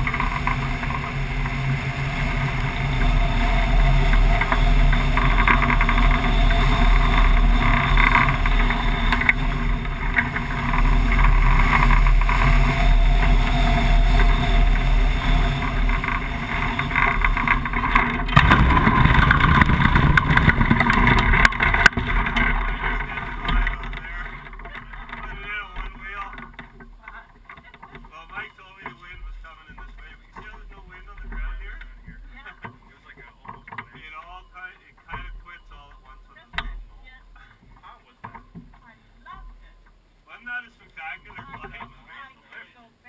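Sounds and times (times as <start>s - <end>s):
wind rushing over camera: 0.0s - 27.6s
wheels sliding across grass: 0.0s - 43.0s.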